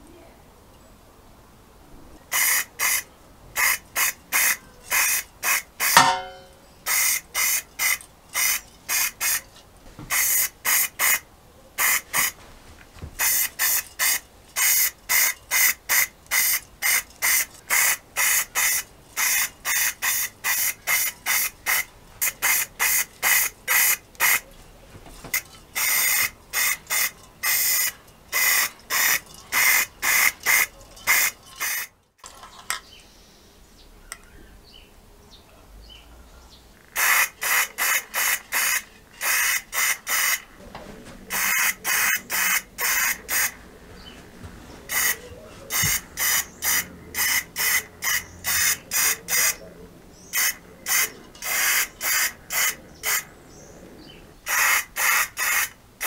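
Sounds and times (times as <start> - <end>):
aerosol spray can hissing: 2.3 - 3.0, 13.2 - 24.4, 37.0 - 40.4, 44.9 - 49.2, 54.5 - 55.7.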